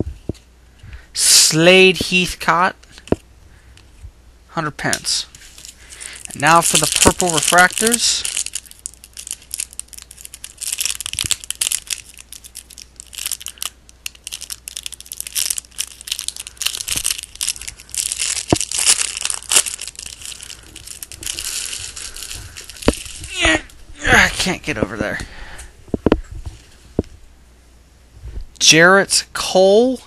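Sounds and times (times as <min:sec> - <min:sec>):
plastic wrapper crinkling and tearing: 0:04.9 - 0:24.8.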